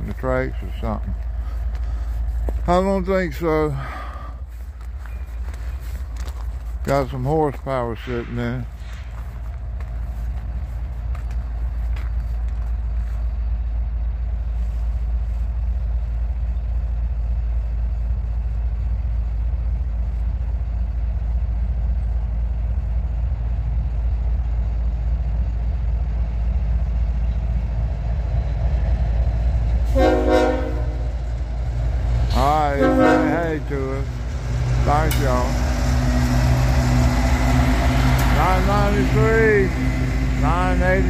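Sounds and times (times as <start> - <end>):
diesel locomotive engine rumble: 0.0 - 41.0
train air horn blast: 29.9 - 31.1, 32.7 - 33.7.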